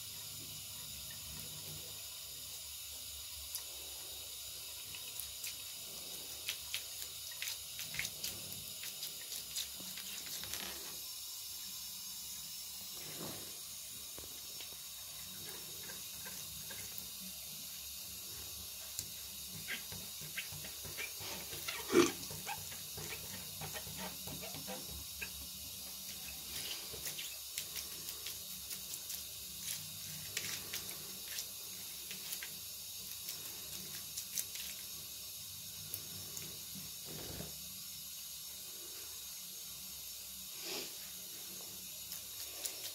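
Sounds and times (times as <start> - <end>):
tap water running into bathtub: 0.0 - 42.9
small splashes and taps: 4.8 - 5.7, 6.4 - 10.8, 18.9 - 34.9.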